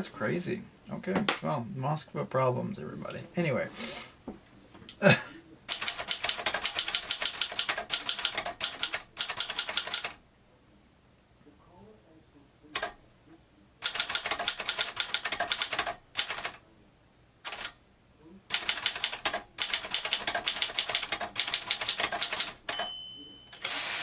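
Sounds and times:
manual typewriter typing: 0:05.7 - 0:10.2, 0:12.8 - 0:13.0, 0:13.8 - 0:16.6, 0:17.5 - 0:17.8, 0:18.5 - 0:22.9
typewriter carriage return: 0:05.7 - 0:10.2, 0:13.8 - 0:16.6, 0:18.5 - 0:22.9, 0:23.5 - 0:24.0
typewriter margin bell: 0:18.6 - 0:24.0.

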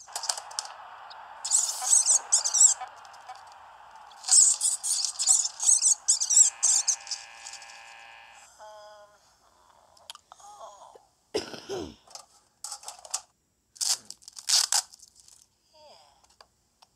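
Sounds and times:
short high scratchy sounds: 0:00.0 - 0:08.5
steady background hiss: 0:00.0 - 0:13.8.

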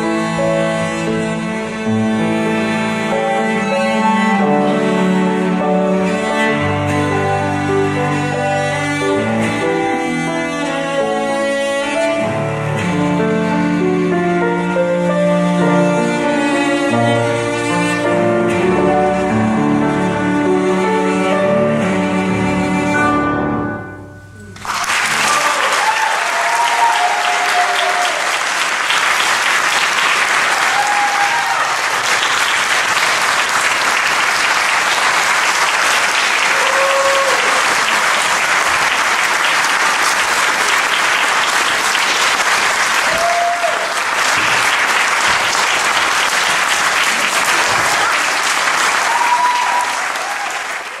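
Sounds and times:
cello and piano music: 0:00.0 - 0:24.4, 0:29.1 - 0:49.8
audience applauding: 0:24.4 - 0:51.0
crowd shouts: 0:25.1 - 0:28.3, 0:30.6 - 0:31.8, 0:43.0 - 0:43.9, 0:49.0 - 0:50.6.

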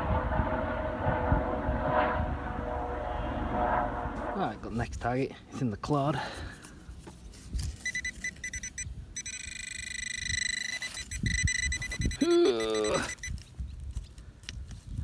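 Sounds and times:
pulsing detector tone: 0:07.8 - 0:13.4
metal detector beeps: 0:07.8 - 0:13.5.

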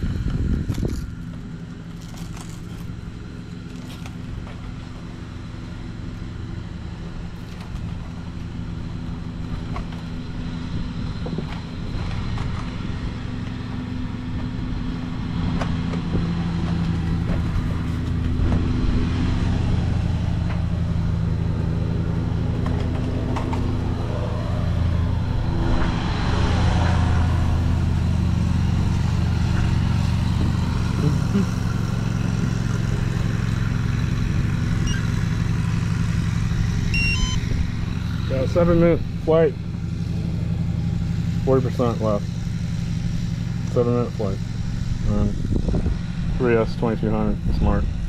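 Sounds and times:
riding lawn mower engine running: 0:00.0 - 0:48.0.

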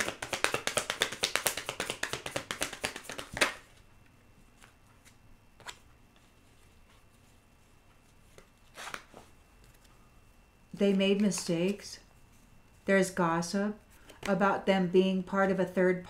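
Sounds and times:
cards being shuffled: 0:00.0 - 0:03.8, 0:04.6 - 0:07.3, 0:08.3 - 0:09.9.

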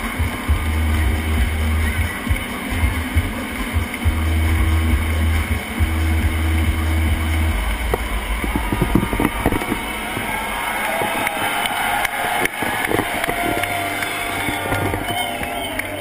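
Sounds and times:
deep electronic rumble: 0:00.0 - 0:15.2
clicks and crackles: 0:07.7 - 0:16.0.

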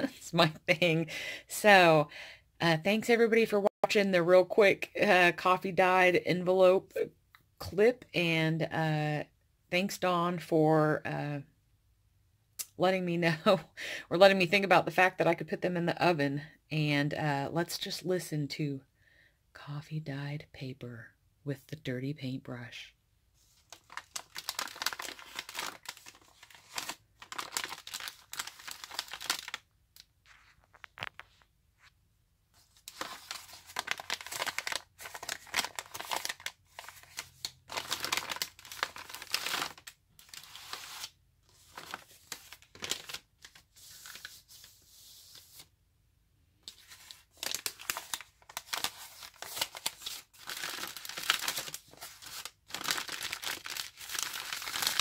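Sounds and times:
paper envelopes crinkling: 0:23.5 - 0:31.4, 0:32.6 - 0:45.7, 0:46.6 - 0:55.0.

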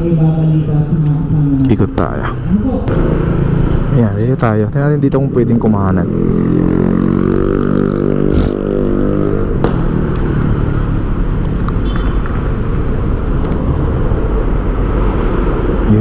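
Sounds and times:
wind and road noise: 0:00.0 - 0:16.0
motorcycle engine running: 0:02.7 - 0:04.4, 0:05.2 - 0:12.4.

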